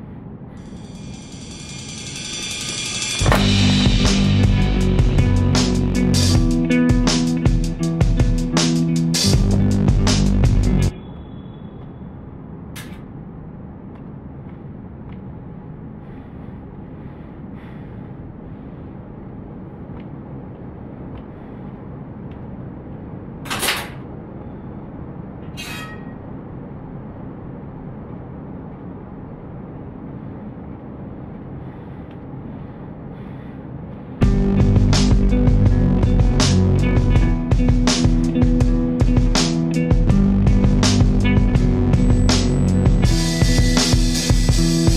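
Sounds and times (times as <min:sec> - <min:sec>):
room hum: 0:00.0 - 0:44.9
sharp clink or scrape: 0:00.6 - 0:03.4, 0:25.5 - 0:26.2.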